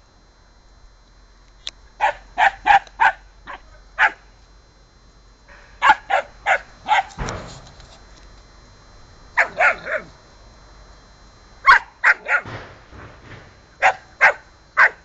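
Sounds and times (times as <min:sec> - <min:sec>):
puppy barking: 0:02.0 - 0:04.2, 0:05.8 - 0:07.2, 0:09.4 - 0:10.1, 0:11.6 - 0:12.5, 0:13.8 - 0:15.0.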